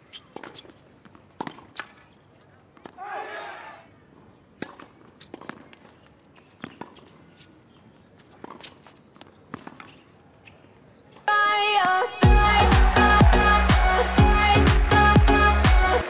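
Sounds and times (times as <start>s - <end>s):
racquets striking tennis ball: 0.1s - 2.2s, 4.5s - 10.6s
loud music: 12.2s - 16.0s.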